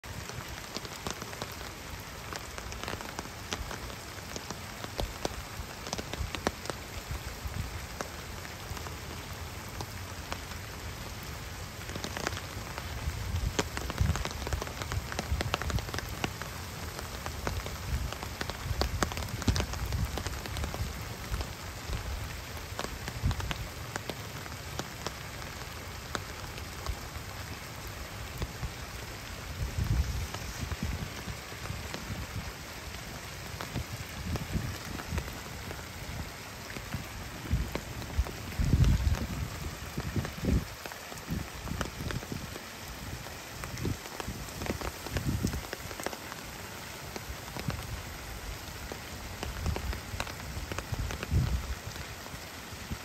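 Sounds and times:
rain falling on pond: 0.0 - 53.0.

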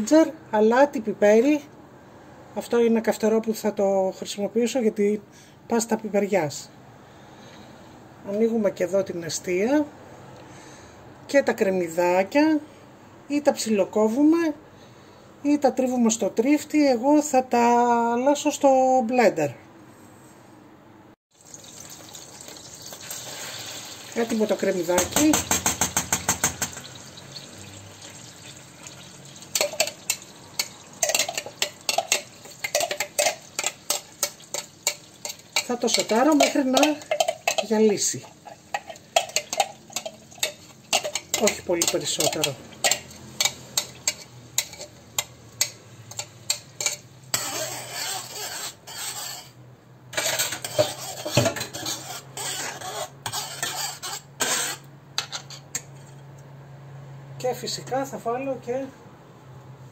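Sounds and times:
onion sizzling in butter: 21.3 - 49.5, 50.2 - 54.9
metal spoon clinking on pan: 29.5 - 47.5.

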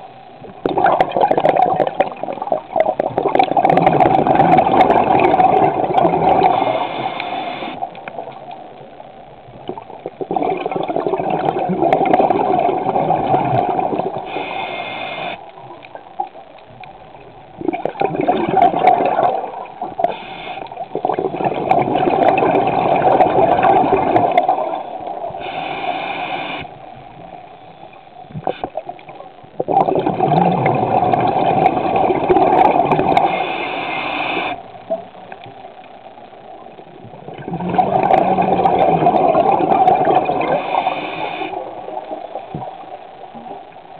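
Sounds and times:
muffled underwater sloshing: 0.0 - 43.9.

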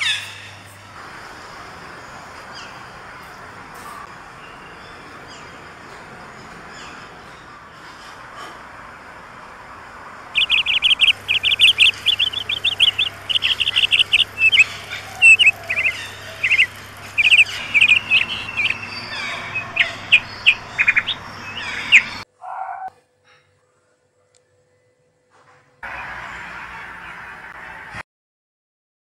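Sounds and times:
parakeets chirping: 10.3 - 22.3.

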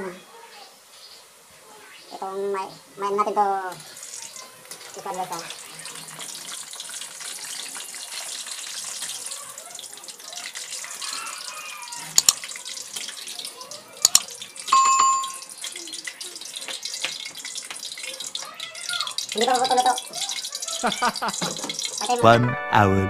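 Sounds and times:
chips sizzling in hot oil: 3.2 - 22.2
bell ding: 14.7 - 15.5.

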